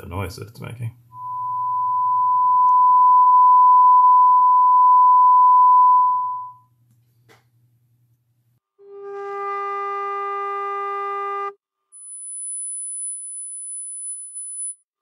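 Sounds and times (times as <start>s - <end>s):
sine test tone through speaker: 1.1s - 6.7s.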